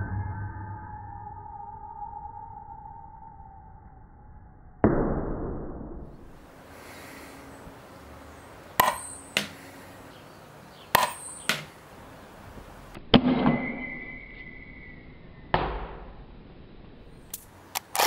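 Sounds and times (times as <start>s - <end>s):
high steady ringing tone: 0.0s - 4.8s, 8.8s - 9.4s.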